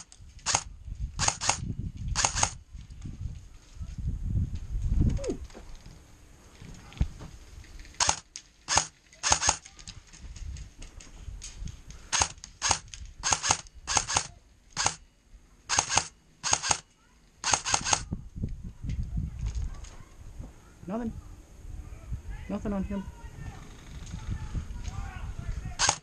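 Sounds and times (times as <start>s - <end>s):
airsoft rifle shots: 0.0s - 1.6s, 2.2s - 2.6s, 8.0s - 9.6s, 12.1s - 15.0s, 15.7s - 18.1s, 25.8s - 26.0s.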